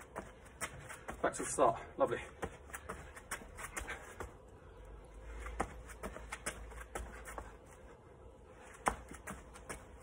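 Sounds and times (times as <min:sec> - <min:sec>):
footfalls on stone paving: 0:00.0 - 0:01.6, 0:02.2 - 0:04.4, 0:05.4 - 0:07.6, 0:08.7 - 0:10.0.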